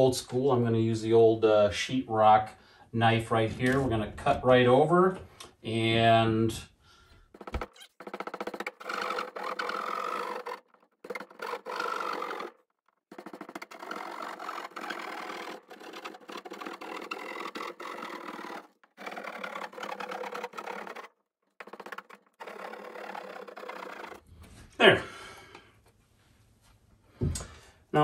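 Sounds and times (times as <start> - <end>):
knife sawing through drywall: 7.3 - 24.4.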